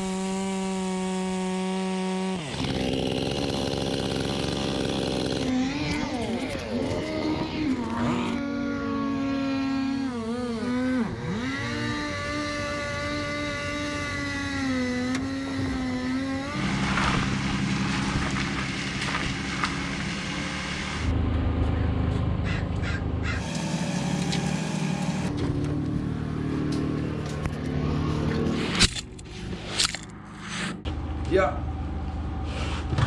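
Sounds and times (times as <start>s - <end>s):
chainsaw running at high revs: 0.0s - 21.1s, 23.4s - 25.4s.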